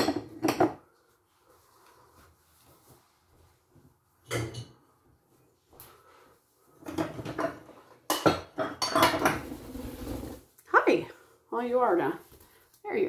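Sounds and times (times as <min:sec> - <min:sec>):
dishes and cutlery clinking: 0:00.0 - 0:00.8, 0:04.2 - 0:04.9, 0:06.8 - 0:09.6.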